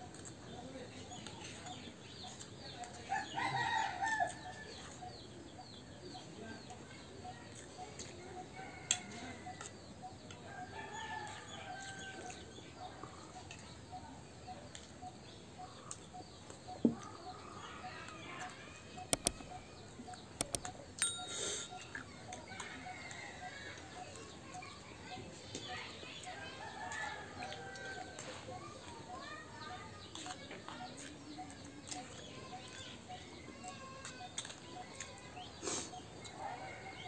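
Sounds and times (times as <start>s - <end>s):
spoons clinking against plates: 21.0s - 22.1s.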